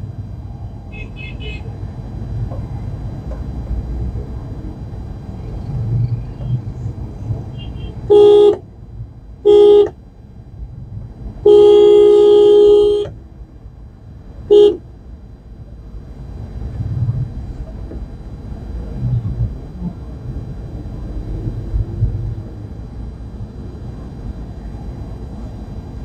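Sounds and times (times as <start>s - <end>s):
car engine and road rumble: 0.0s - 26.0s
car horn honking: 0.9s - 1.7s, 7.5s - 8.6s, 9.4s - 10.0s, 11.4s - 13.2s, 14.5s - 14.8s.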